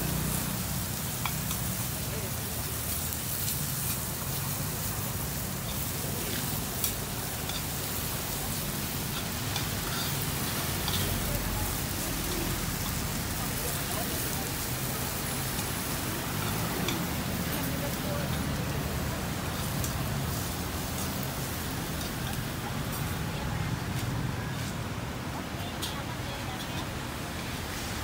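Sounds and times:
food sizzling in a pan: 0.0 - 28.0
rain falling: 0.0 - 28.0
tongs clicking against pan: 1.2 - 1.8, 5.7 - 7.8, 9.1 - 11.3.

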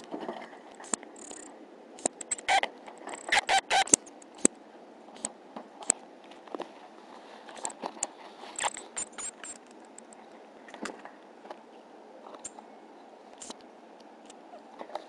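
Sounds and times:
high squeaks: 2.2 - 4.1, 8.6 - 9.6.

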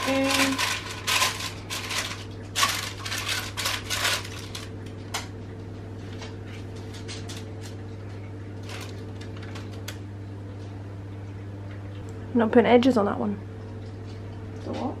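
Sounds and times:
baking paper crinkling: 0.0 - 5.3, 6.0 - 10.0
steady low hum: 0.0 - 15.0.

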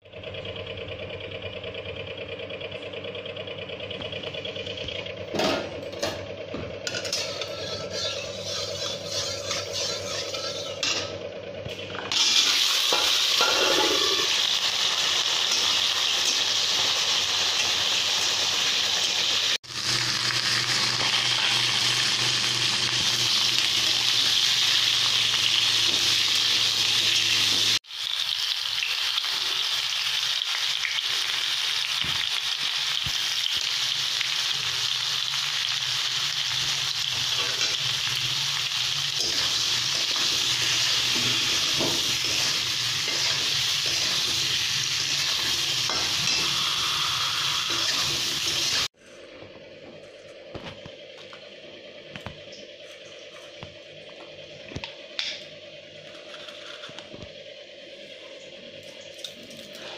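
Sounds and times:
metal spatula stirring: 7.1 - 11.0, 39.2 - 44.3
potatoes frying in oil: 12.1 - 48.9.

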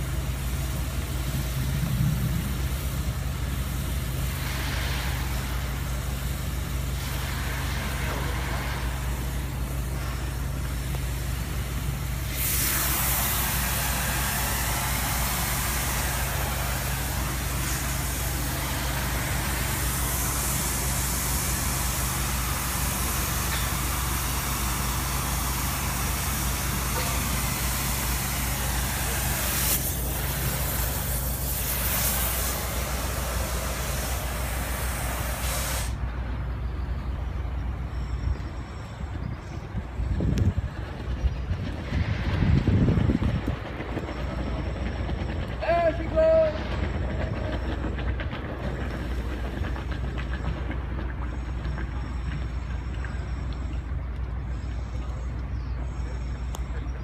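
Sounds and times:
gas torch hissing: 0.0 - 36.0
steady low hum: 0.0 - 57.0.

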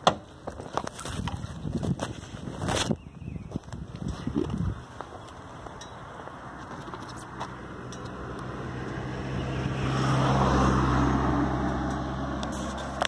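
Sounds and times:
tyre noise: 0.0 - 8.2
car engine hum: 4.6 - 13.0.

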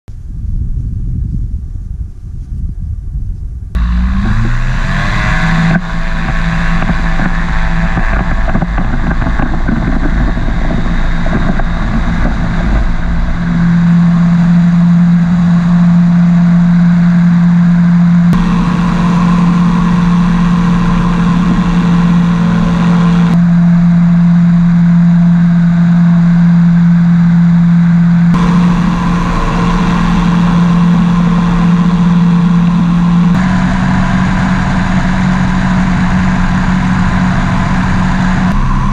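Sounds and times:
wind rushing over microphone: 0.1 - 23.5, 28.3 - 38.9
microlight engine drone: 3.7 - 38.9.

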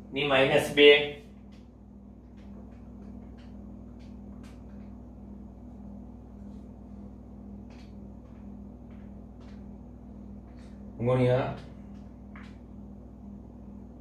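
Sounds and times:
low electrical hum: 0.0 - 14.0.

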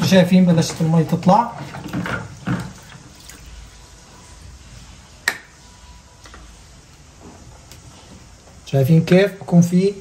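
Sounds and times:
water trickling into container: 1.9 - 3.8.

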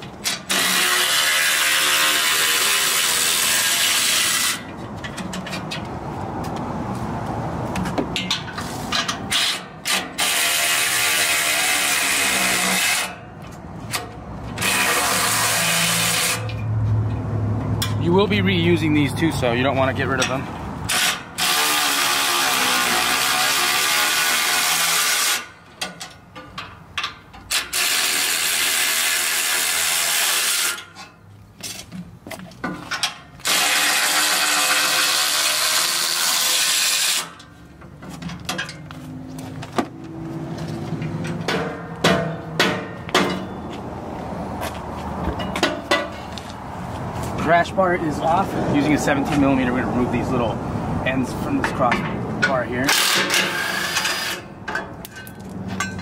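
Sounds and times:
electric ratchet spinning nuts: 0.3 - 4.6, 14.6 - 16.6, 20.9 - 25.6, 27.5 - 30.8, 33.4 - 37.4, 52.9 - 54.5.

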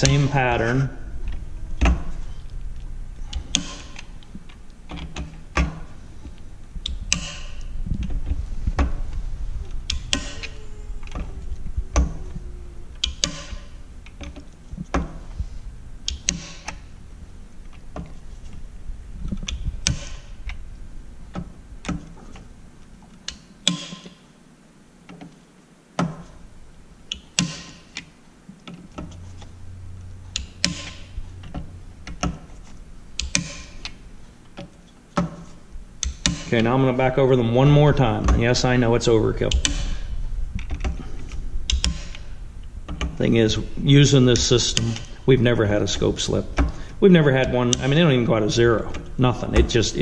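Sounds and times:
torque driver clicking: 9.7 - 11.3, 12.9 - 15.2, 16.0 - 16.8, 30.3 - 32.5, 33.2 - 34.0, 39.5 - 41.1, 41.7 - 43.2.

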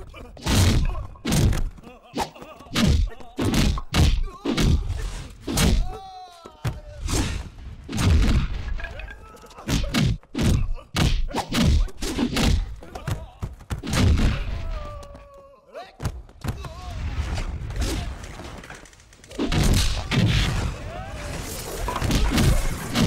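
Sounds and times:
punch and kick impacts: 0.4 - 1.8, 2.7 - 4.9, 5.5 - 5.9, 6.7 - 8.6, 9.7 - 14.6, 19.4 - 20.8.

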